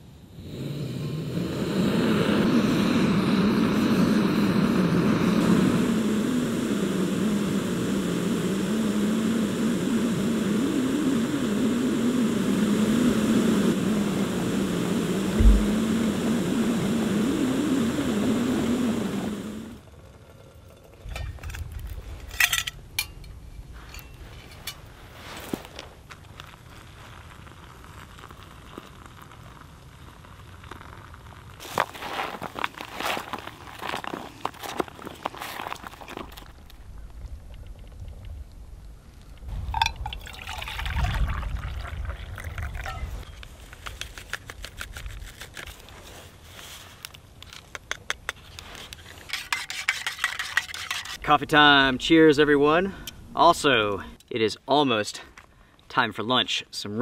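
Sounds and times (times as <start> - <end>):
gas stove roaring: 0.3 - 21.6
foil pouch crinkling: 26.2 - 36.8, 43.4 - 47.0
water pouring into a pouch: 39.7 - 43.2.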